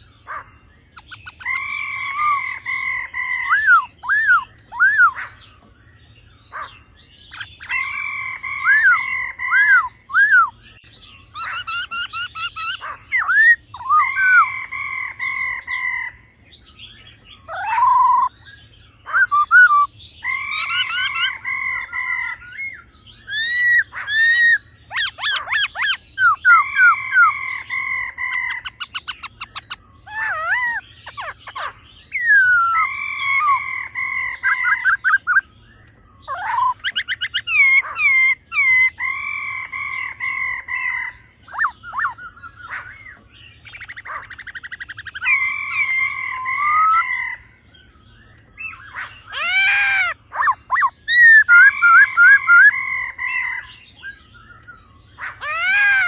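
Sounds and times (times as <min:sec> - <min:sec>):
bird whistled song: 0:00.0 - 0:56.0.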